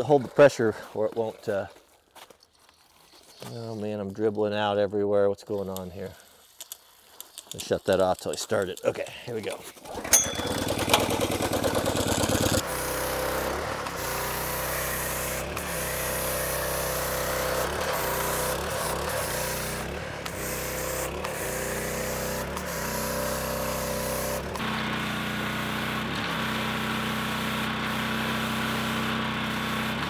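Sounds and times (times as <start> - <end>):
pressure washer engine running: 9.8 - 30.0.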